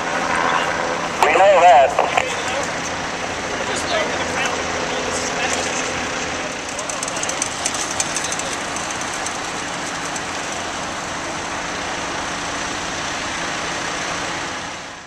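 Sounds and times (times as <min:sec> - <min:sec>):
diesel engine idling: 0:06.0 - 0:15.0.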